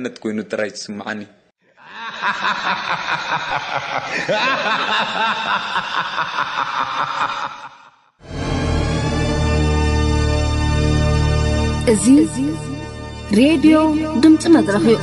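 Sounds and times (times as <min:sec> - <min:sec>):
laughter: 0:01.8 - 0:08.1
music: 0:08.2 - 0:15.0.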